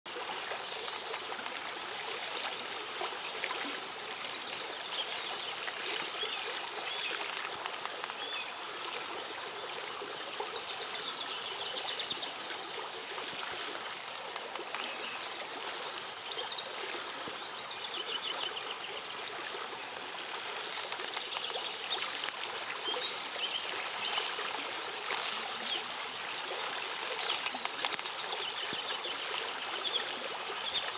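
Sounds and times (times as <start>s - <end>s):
stream running over stones: 0.0s - 30.9s.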